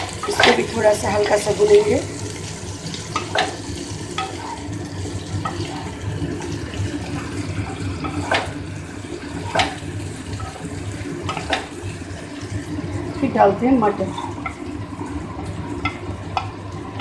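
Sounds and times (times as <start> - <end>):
vegetables sizzling in oil: 0.0 - 17.0.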